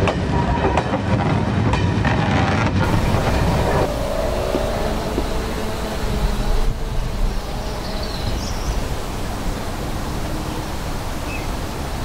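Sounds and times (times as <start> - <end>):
low outdoor rumble: 2.8 - 12.0.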